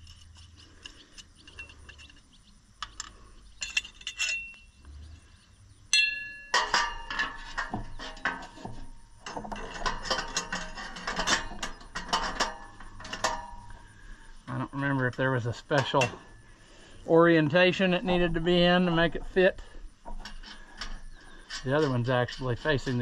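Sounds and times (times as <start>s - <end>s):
metal clamp clinking: 2.9s - 4.6s.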